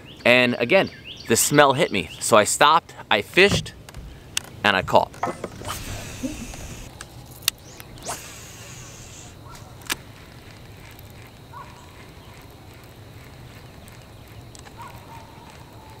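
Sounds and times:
quiet outdoor background: 0:00.0 - 0:16.0
fishing reel clicks: 0:05.7 - 0:11.4
fishing rod swish: 0:07.7 - 0:09.3.

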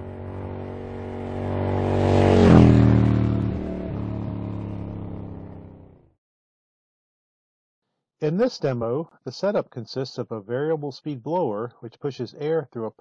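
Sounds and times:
vehicle engine passing by: 0:00.0 - 0:06.0.

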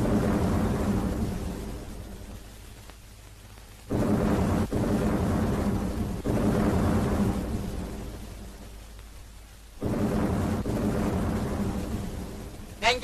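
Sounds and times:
deep rumbling boom: 0:03.9 - 0:08.6, 0:09.8 - 0:12.8.

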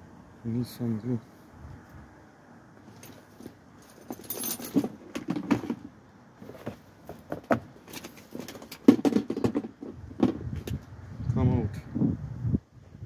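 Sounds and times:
tools clattering and knocking: 0:02.8 - 0:10.8.

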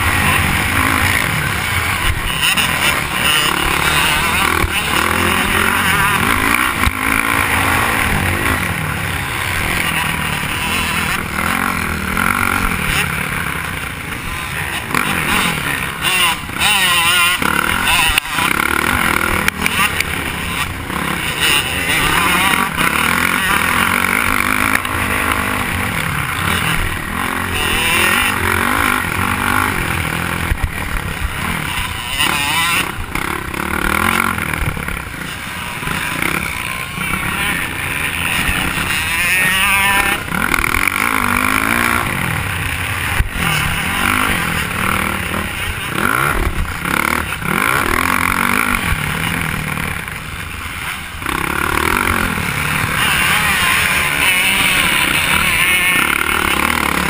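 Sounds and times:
motocross bike engine revving: 0:00.0 - 0:57.0.

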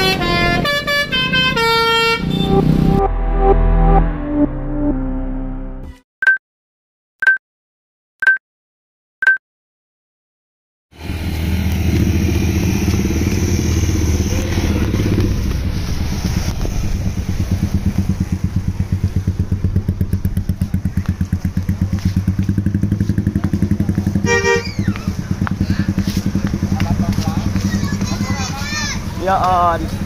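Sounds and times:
bus and motorcycle engines running: 0:00.0 - 0:03.0, 0:11.0 - 0:30.0.

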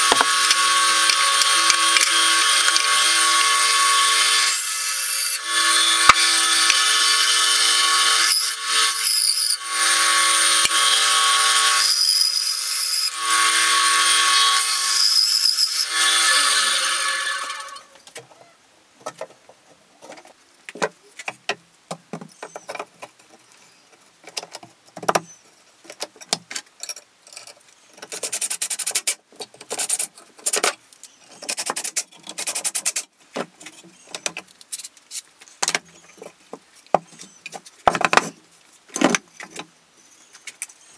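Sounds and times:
knocks of wooden pieces: 0:00.0 - 0:03.6, 0:35.6 - 0:39.7
saw motor winding down: 0:00.0 - 0:08.9
bandsaw cutting wood: 0:00.0 - 0:17.9.

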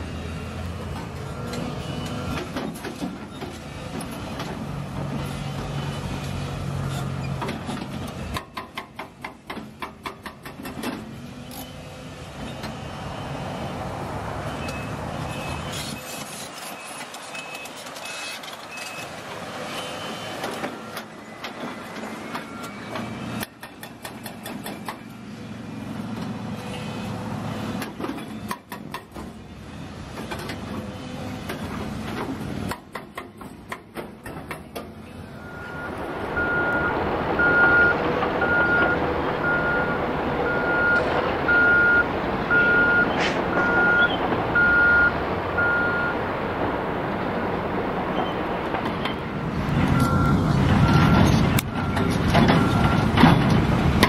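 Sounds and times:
diesel engine of wheel loader: 0:00.0 - 0:54.0
low-pitched reversing alarm beeps: 0:35.4 - 0:46.2, 0:49.9 - 0:53.0
reversing alarm beeping: 0:35.4 - 0:46.2, 0:49.9 - 0:53.1.

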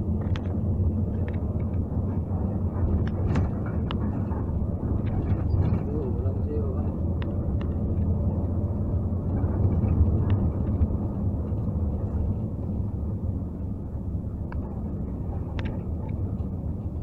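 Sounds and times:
bus engine and road rumble: 0:00.0 - 0:17.0
faint clicks and rattles: 0:00.2 - 0:12.8.

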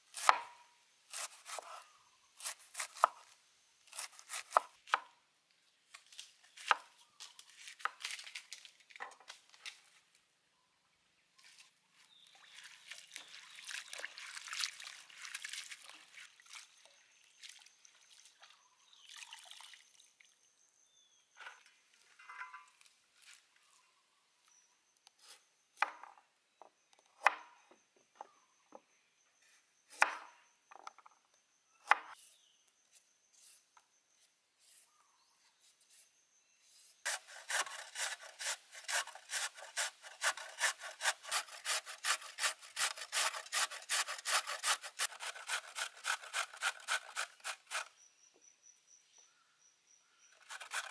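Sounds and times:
knife chopping on wooden board: 0:00.2 - 0:00.5, 0:04.0 - 0:05.1
carrot grating on metal grater: 0:37.1 - 0:47.9, 0:50.4 - 0:50.9.

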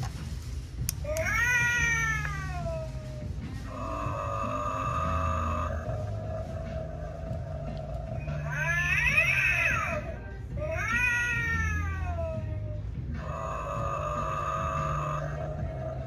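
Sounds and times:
recorded cat yowls: 0:01.1 - 0:03.0, 0:08.2 - 0:12.5, 0:13.2 - 0:15.9.

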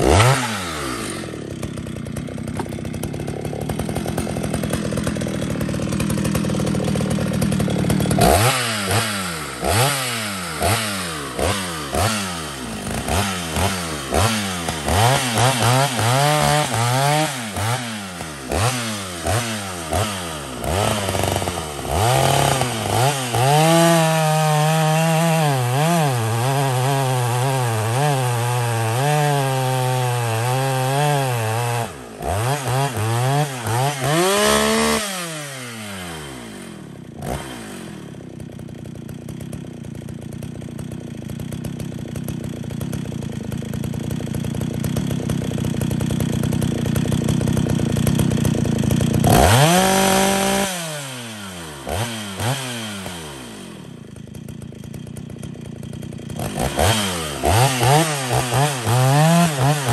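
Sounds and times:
chainsaw revving: 0:00.0 - 0:59.9.

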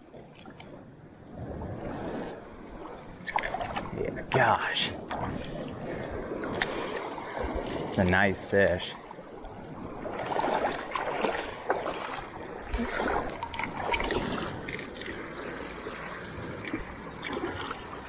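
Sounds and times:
fish thrashing in shallow water: 0:01.4 - 0:04.1, 0:09.3 - 0:18.0
lapping water: 0:10.1 - 0:18.0.

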